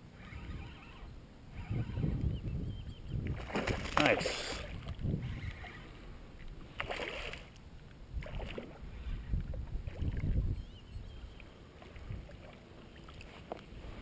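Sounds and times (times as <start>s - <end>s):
fish splashing in shallow water: 3.3s - 6.0s, 6.6s - 7.6s, 8.2s - 10.4s.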